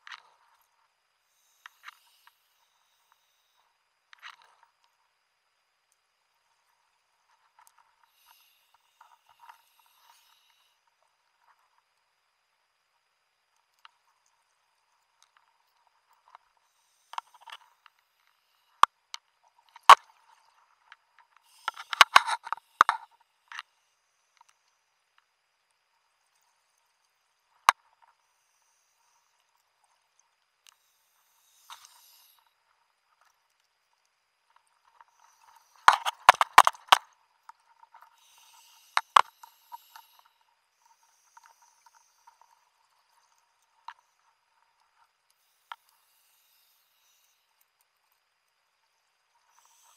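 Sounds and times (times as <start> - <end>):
faint hiss: 0.0 - 49.9
crackling taps: 34.6 - 38.1.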